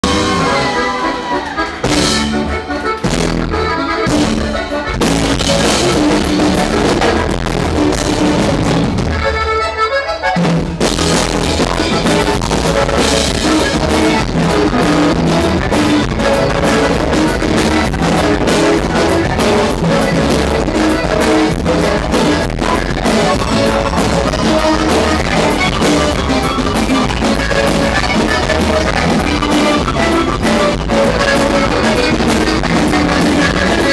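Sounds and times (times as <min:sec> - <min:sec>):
drum kit: 0:00.0 - 0:33.9
saxophone: 0:00.0 - 0:33.9.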